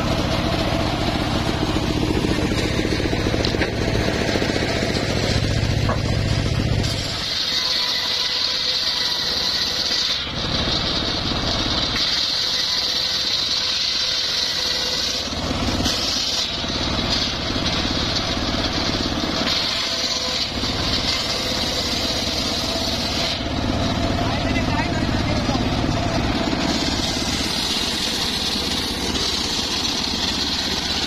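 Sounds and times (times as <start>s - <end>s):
engine hum: 0.0s - 7.4s, 14.6s - 31.0s
saw blade whining in wood: 0.0s - 31.0s.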